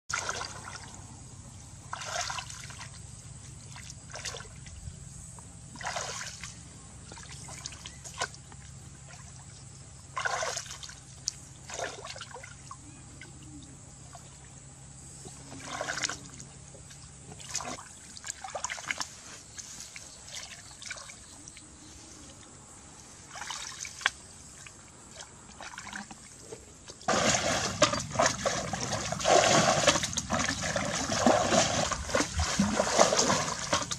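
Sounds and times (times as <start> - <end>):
bucket splashing through water: 0.1 - 1.0, 1.9 - 3.0, 5.8 - 8.4, 10.2 - 12.5, 15.4 - 16.4, 17.3 - 19.1, 23.3 - 24.2, 26.9 - 33.9
muddy water splashing: 0.1 - 1.1, 1.8 - 4.9, 5.7 - 14.6, 15.2 - 22.2, 23.2 - 33.9.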